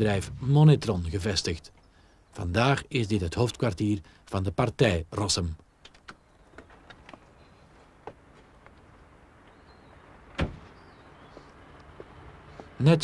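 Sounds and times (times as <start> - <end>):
background hiss: 0.0 - 13.0
car door shutting thud: 10.3 - 10.7.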